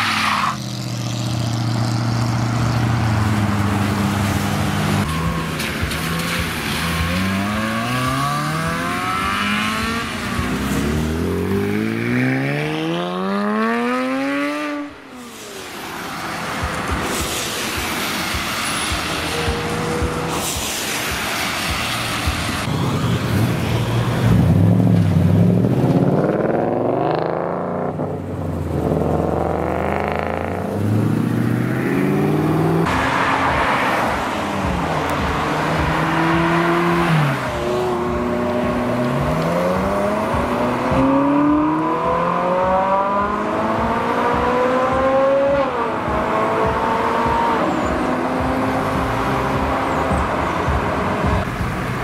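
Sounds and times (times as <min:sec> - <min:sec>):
car engine rumbling and revving: 0:00.0 - 0:52.0
sports car accelerating through gears: 0:35.0 - 0:51.4.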